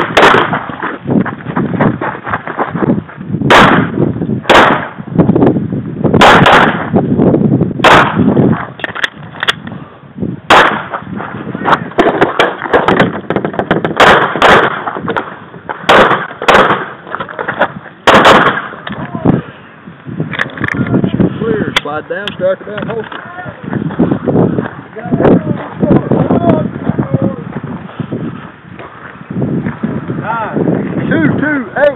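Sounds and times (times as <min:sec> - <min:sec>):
pistol shots: 0:00.0 - 0:00.7, 0:03.5 - 0:05.0, 0:06.2 - 0:06.9, 0:07.8 - 0:08.3, 0:10.5 - 0:11.0, 0:13.9 - 0:15.2, 0:15.9 - 0:17.0, 0:18.0 - 0:18.8.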